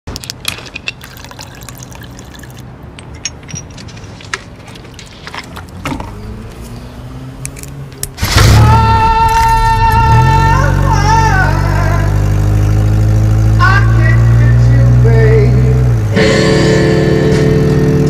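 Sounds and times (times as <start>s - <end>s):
liquid pouring from a bottle: 1.0s - 2.7s.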